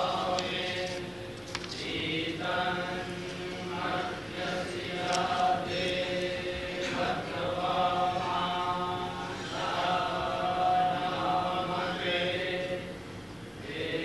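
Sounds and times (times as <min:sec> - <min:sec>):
men chanting in unison: 0:00.0 - 0:13.0, 0:13.6 - 0:14.0.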